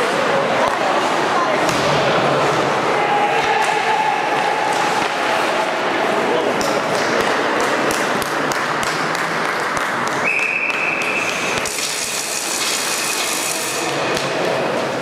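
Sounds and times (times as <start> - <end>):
sticks and puck clacking: 0.0 - 1.8, 3.3 - 15.0
arena crowd hubbub: 0.0 - 15.0
skates on ice: 3.4 - 15.0
referee's whistle: 10.2 - 11.5.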